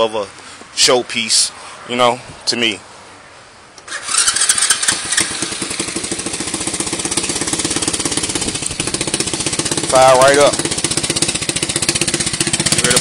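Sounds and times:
motorcycle engine starting and idling: 3.8 - 13.0.

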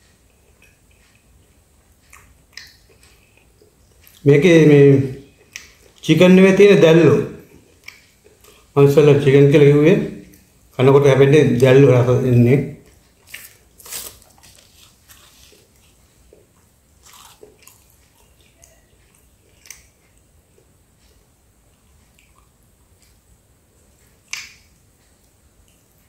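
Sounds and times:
wet chewing: 0.2 - 4.3, 7.4 - 8.8, 12.8 - 26.0
biting into crusty food: 12.9 - 20.2.

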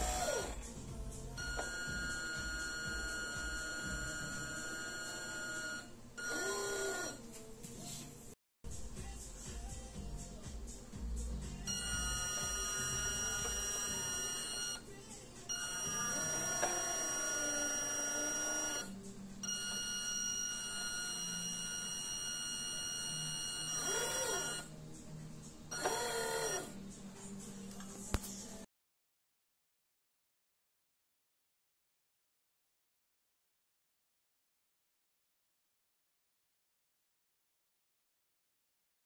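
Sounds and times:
electric gearmotor whining: 0.0 - 0.7, 1.4 - 7.2, 11.8 - 14.8, 15.6 - 18.9, 19.6 - 24.7, 25.8 - 26.8.

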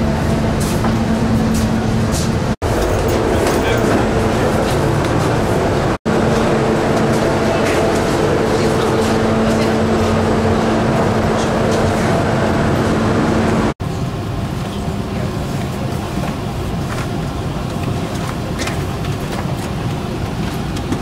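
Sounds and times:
airport apron drone: 0.0 - 21.0
faint passenger chatter: 1.6 - 6.3, 6.9 - 12.2, 14.5 - 21.0.

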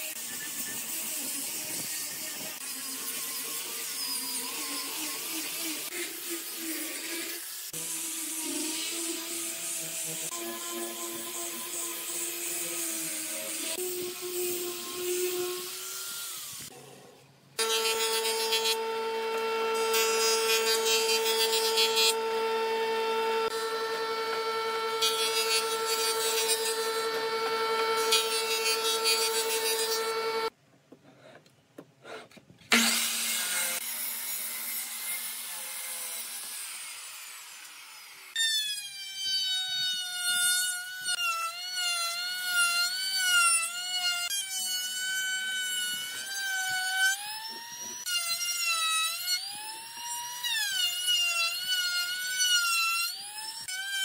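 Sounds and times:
angle grinder sanding: 0.0 - 16.7, 17.6 - 30.5
router whining cutting wood: 0.0 - 16.7, 17.6 - 30.5, 32.7 - 54.0
jointer-planer humming: 17.6 - 30.5.

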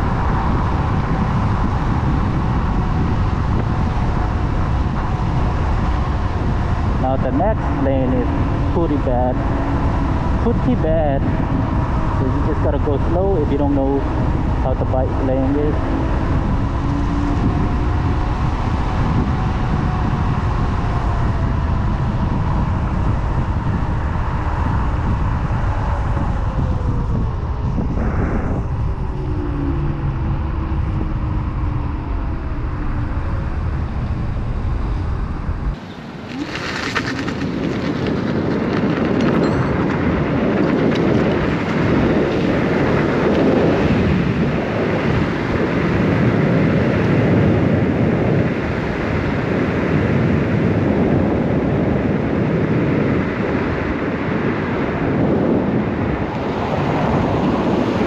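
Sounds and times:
faint motor whines: 0.0 - 39.7
road noise rumble: 0.0 - 58.0
wind rushing over microphone: 0.0 - 58.0.

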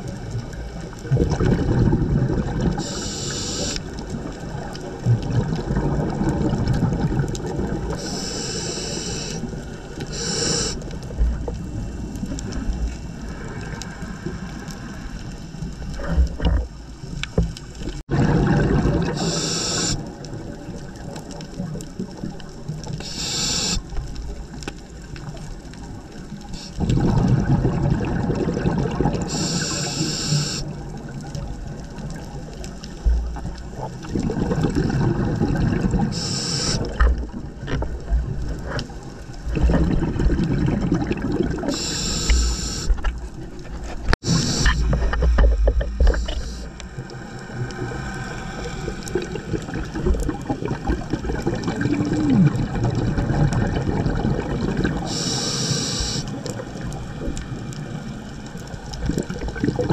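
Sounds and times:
exhaled air bubbling underwater: 0.0 - 59.9
regulator inhalation hisses: 2.8 - 3.9, 8.0 - 10.9, 19.1 - 20.1, 23.0 - 23.9, 26.5 - 26.8, 29.3 - 30.7, 36.1 - 37.0, 41.7 - 43.0, 44.2 - 45.0, 46.0 - 46.8, 55.1 - 56.4.

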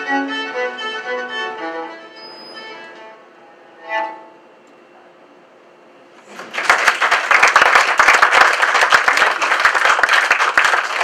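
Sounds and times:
audience applauding: 6.3 - 11.0.

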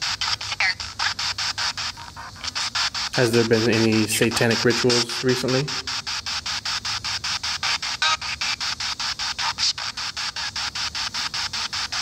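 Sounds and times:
pulsing radio static: 0.0 - 12.0.

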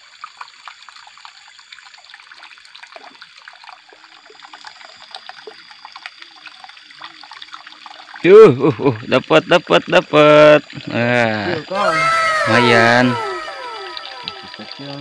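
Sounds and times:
water trickling into stream: 0.0 - 11.7.

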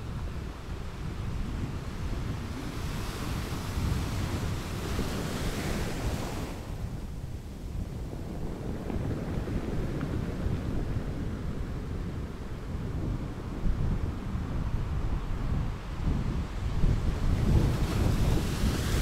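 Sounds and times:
wind rumble on microphone: 0.0 - 19.0
surf washing over rocks: 2.0 - 12.7, 16.8 - 19.0.

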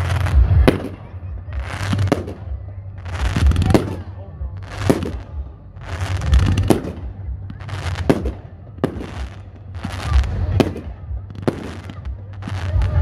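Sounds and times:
firework crackling: 0.0 - 13.0.

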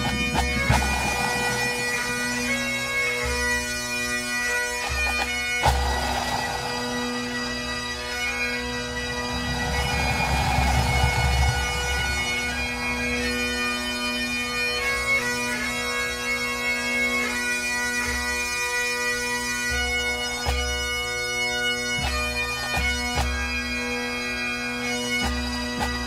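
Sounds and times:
bagpipe band playing: 0.0 - 26.0
low drum beats: 9.0 - 13.6.

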